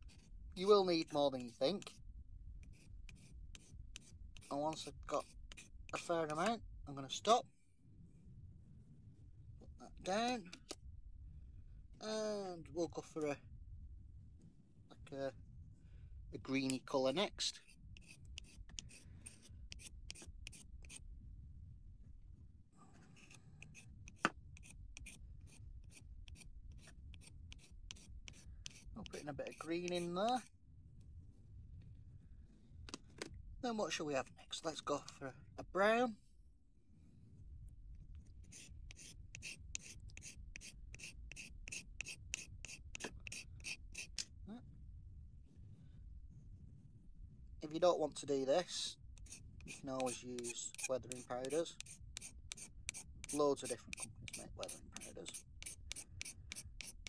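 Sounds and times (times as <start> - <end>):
blade scraping pastel: 0.0 - 2.0, 2.6 - 7.4, 16.4 - 21.1, 22.8 - 30.6, 38.2 - 44.3, 48.7 - 57.0.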